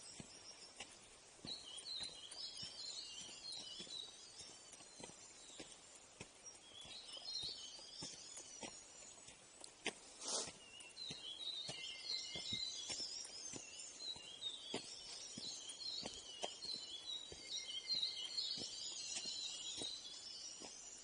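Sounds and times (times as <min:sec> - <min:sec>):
birds twittering: 0:00.0 - 0:21.0
footsteps crunching on dirt: 0:00.0 - 0:21.0.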